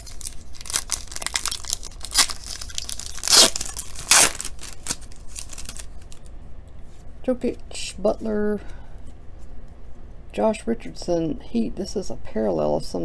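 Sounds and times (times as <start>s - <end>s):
foil wrapper ripping: 0.0s - 6.2s
foil wrapper crinkling: 0.0s - 6.3s.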